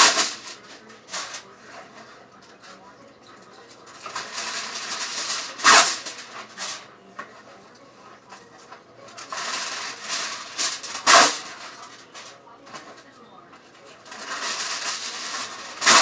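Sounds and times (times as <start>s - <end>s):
sharp loud clatter: 0.0s - 1.4s, 3.9s - 6.9s, 9.2s - 13.0s, 14.0s - 16.0s.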